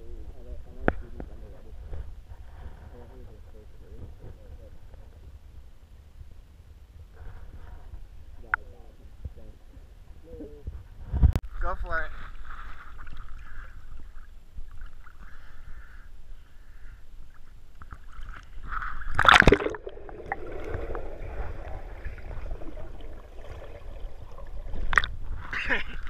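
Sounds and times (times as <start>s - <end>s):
water lapping and sloshing: 11.5s - 16.0s, 16.6s - 26.0s
muffled underwater gurgle: 18.0s - 26.0s
loud splash: 19.1s - 25.1s.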